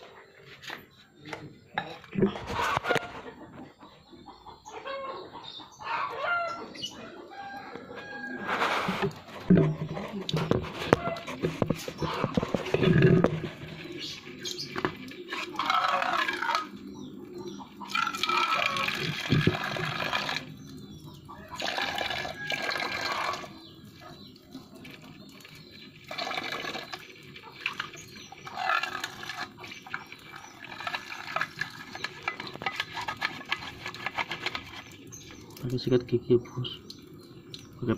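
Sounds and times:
toothbrush scrubbing wet tiles: 24.2 - 35.7.

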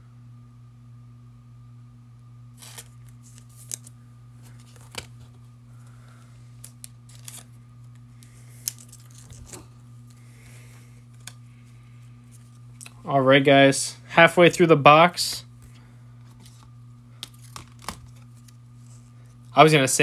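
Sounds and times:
low electrical hum: 0.0 - 20.0
trading cards and wrappers rustling: 2.6 - 13.0, 15.6 - 19.5.

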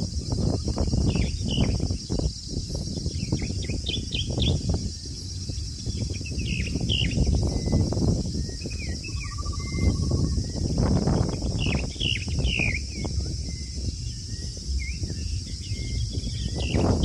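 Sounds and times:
constant low rumble: 0.0 - 17.0
steady high-pitched hiss: 0.0 - 17.0
birds chirping: 0.1 - 17.0.

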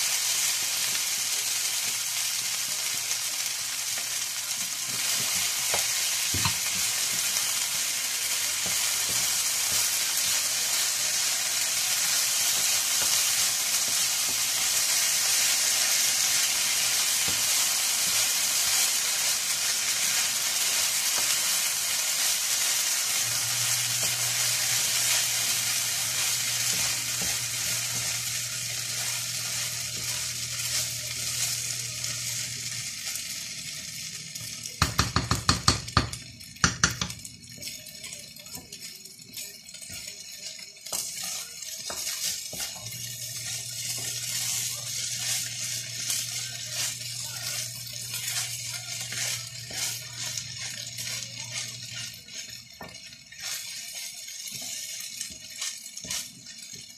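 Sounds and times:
fried rice sizzling in a pan: 0.0 - 56.9
spatula scraping through rice: 22.1 - 31.6, 41.0 - 56.8.

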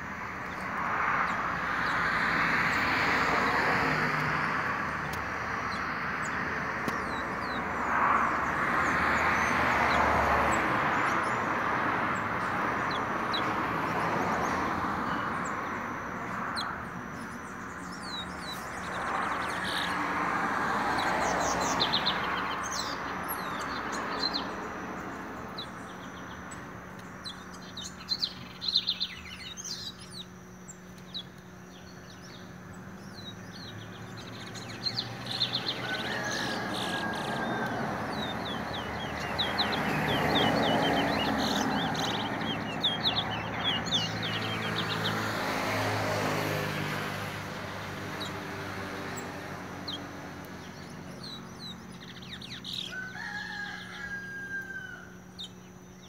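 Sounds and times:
finch chirping and trilling: 4.8 - 7.8, 16.2 - 20.0, 21.0 - 45.2, 47.6 - 54.5.

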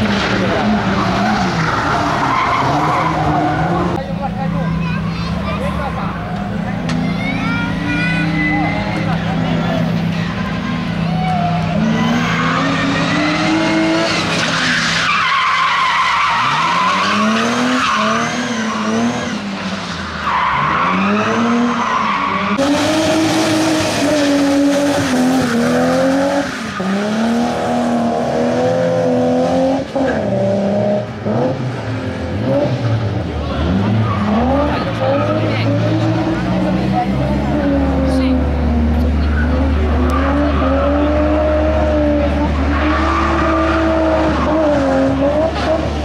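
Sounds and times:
race car engines revving: 0.0 - 46.0
tyre squeals: 7.8 - 9.1.

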